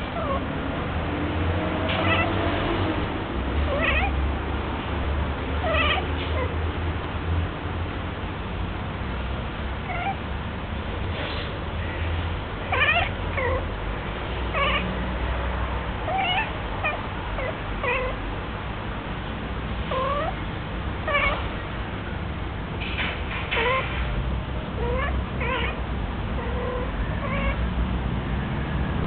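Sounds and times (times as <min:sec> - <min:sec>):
cat meowing: 0:00.2 - 0:00.4, 0:01.9 - 0:02.4, 0:03.7 - 0:04.2, 0:05.6 - 0:06.5, 0:09.8 - 0:10.2, 0:11.8 - 0:13.7, 0:14.5 - 0:14.9, 0:16.0 - 0:18.2, 0:19.9 - 0:20.4, 0:21.0 - 0:21.5, 0:23.5 - 0:24.0, 0:24.8 - 0:25.8, 0:26.4 - 0:27.6.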